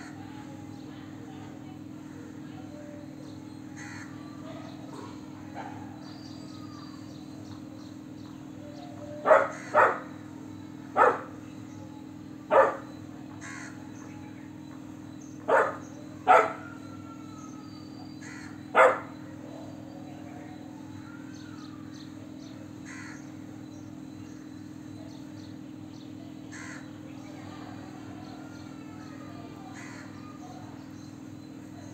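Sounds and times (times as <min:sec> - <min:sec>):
faint bird chirps: 0:00.0 - 0:31.9
steady low hum: 0:00.0 - 0:31.9
puppy barking: 0:04.4 - 0:06.1, 0:09.2 - 0:10.2, 0:10.9 - 0:11.4, 0:12.5 - 0:13.0, 0:15.5 - 0:16.8, 0:18.7 - 0:19.2.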